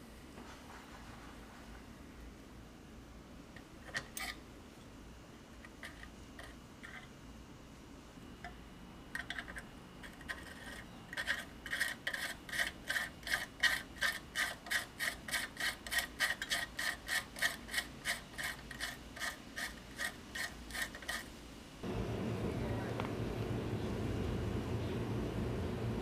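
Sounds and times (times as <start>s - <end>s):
hand tool rasping on metal: 10.2s - 21.3s.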